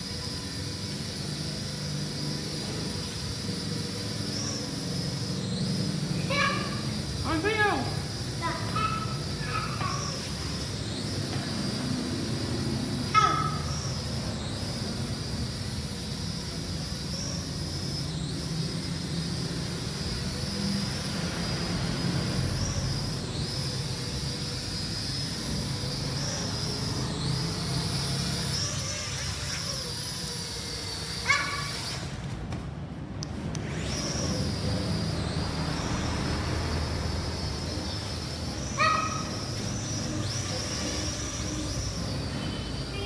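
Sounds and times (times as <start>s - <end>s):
toy drone propellers whining: 0.0s - 43.0s.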